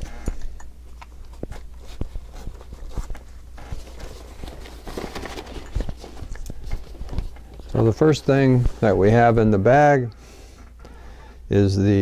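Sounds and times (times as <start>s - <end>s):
rustling: 0.9s - 9.3s.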